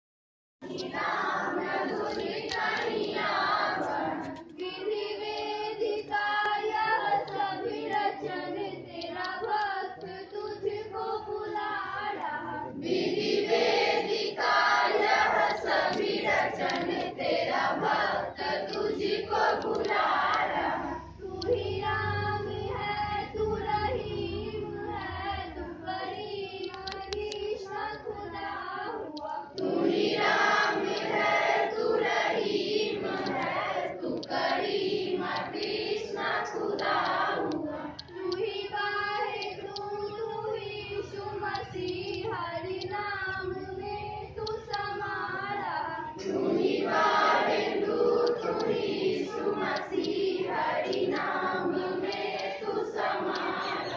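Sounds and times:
children singing together: 0.6 - 53.9.

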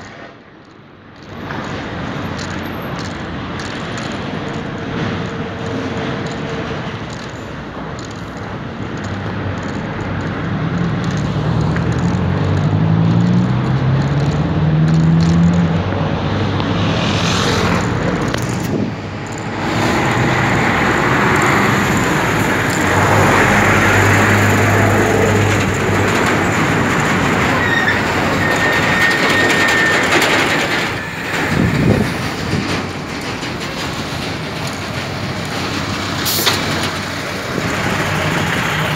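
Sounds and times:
street traffic: 0.0 - 38.9
vehicle engine accelerating: 1.2 - 38.9
wind rushing on microphone: 15.6 - 38.9.

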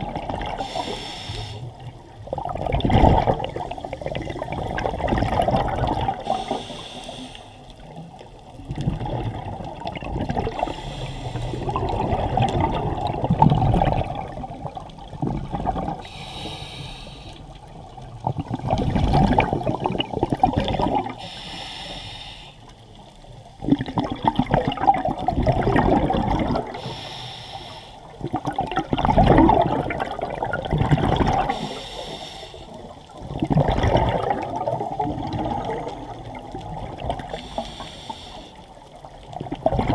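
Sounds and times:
exhaled bubbles rumbling: 0.0 - 1.1, 1.7 - 6.8, 7.7 - 16.3, 17.4 - 21.2, 23.2 - 26.9, 28.1 - 31.8, 32.8 - 37.8, 38.7 - 39.9
regulator inhale hiss: 0.6 - 2.0, 6.2 - 8.0, 10.5 - 11.9, 16.0 - 17.7, 21.2 - 23.0, 26.7 - 28.2, 31.4 - 33.1, 37.2 - 38.8.

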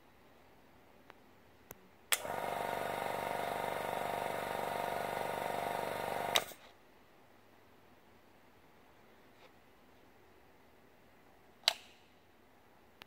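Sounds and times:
compressor motor running: 2.1 - 6.5
rocker switch clicking: 11.6 - 11.9.

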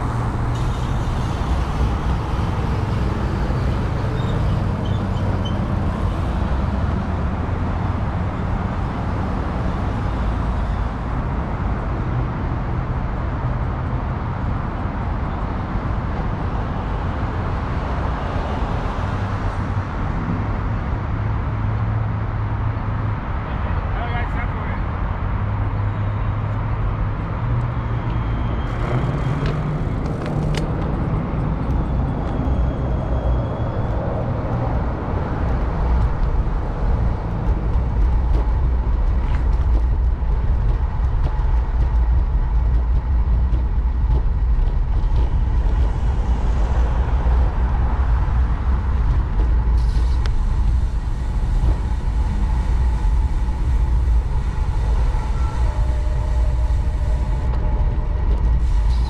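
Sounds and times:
street traffic noise: 0.0 - 59.0
wind buffeting microphone: 26.6 - 59.0.

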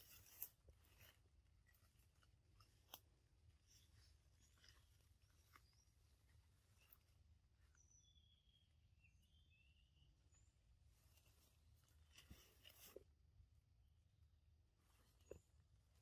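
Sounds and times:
soft rustle of leaves: 0.0 - 7.8, 10.6 - 13.1
faint bird chirps: 2.6 - 13.0.

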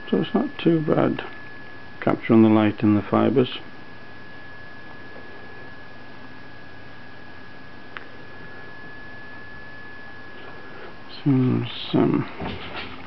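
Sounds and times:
high-pitched electrical whine: 0.0 - 13.0
steady hiss: 10.2 - 13.0.

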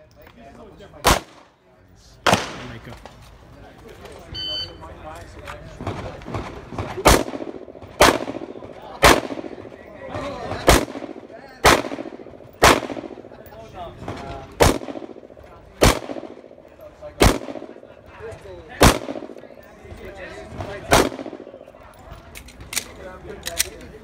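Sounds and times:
pistol shots: 1.0 - 1.5, 2.2 - 2.8, 5.8 - 13.4, 14.0 - 17.9, 18.8 - 19.6, 20.9 - 21.7.

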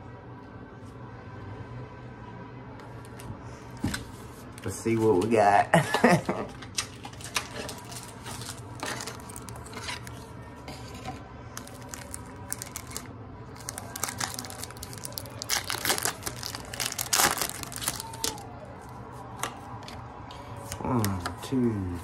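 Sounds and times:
plastic wrapper crinkling and tearing: 6.7 - 10.2, 11.6 - 18.5.

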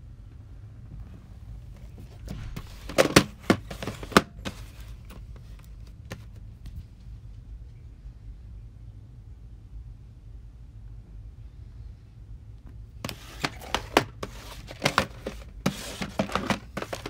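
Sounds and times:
low steady hum: 0.0 - 17.0.

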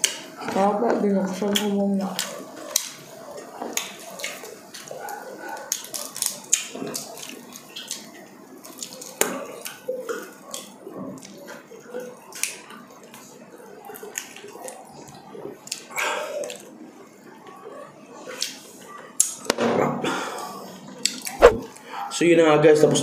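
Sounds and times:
wet mouth clicks from chewing: 21.0 - 21.6.

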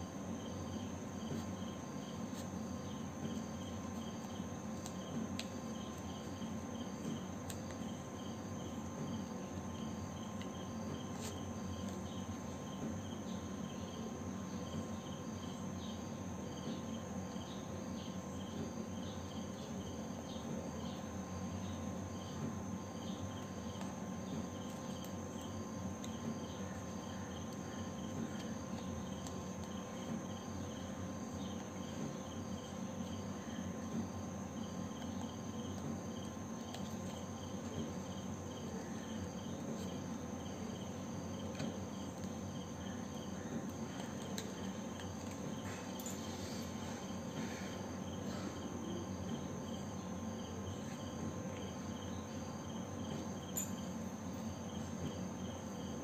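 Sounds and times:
constant hum: 0.0 - 56.0
insect chirping: 0.0 - 56.0.

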